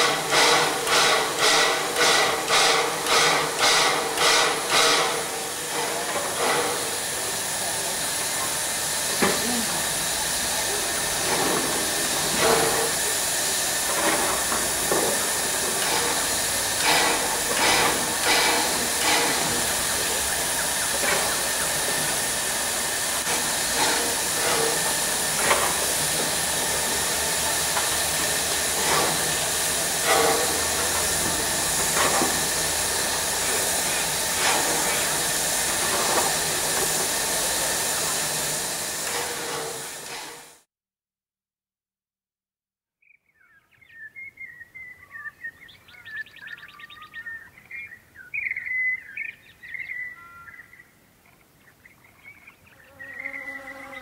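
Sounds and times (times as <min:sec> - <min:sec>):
steam hissing: 0:00.0 - 0:40.7.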